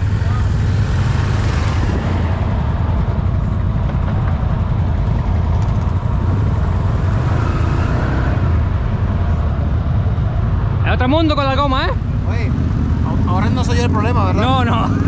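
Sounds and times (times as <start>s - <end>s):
off-road vehicle engine rumbling: 0.0s - 15.0s.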